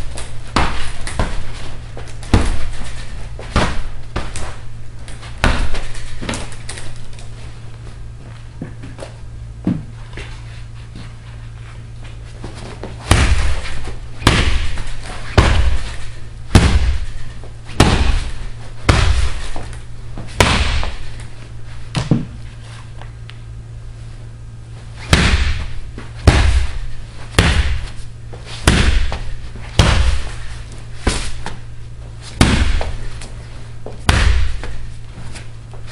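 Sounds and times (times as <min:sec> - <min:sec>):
bat hitting heavy punching bag: 0:00.1 - 0:04.5, 0:05.4 - 0:06.6, 0:13.0 - 0:21.3, 0:25.0 - 0:31.6, 0:32.3 - 0:33.2, 0:33.8 - 0:35.0.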